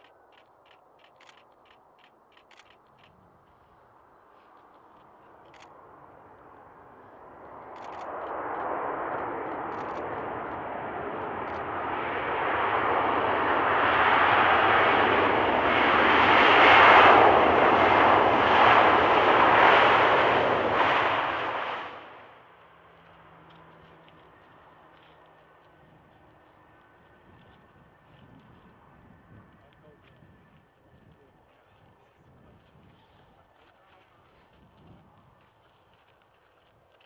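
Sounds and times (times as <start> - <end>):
jet engines roaring: 5.8 - 27.5.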